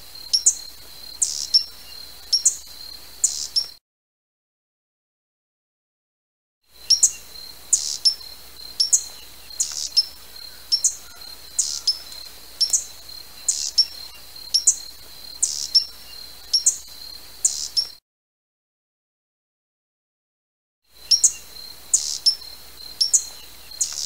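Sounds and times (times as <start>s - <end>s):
hummingbird chips: 11.0s - 14.8s.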